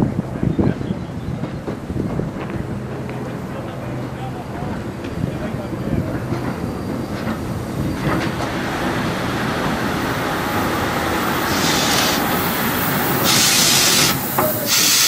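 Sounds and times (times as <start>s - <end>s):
steam locomotive rolling past: 0.0s - 15.0s
steam hissing: 8.6s - 15.0s.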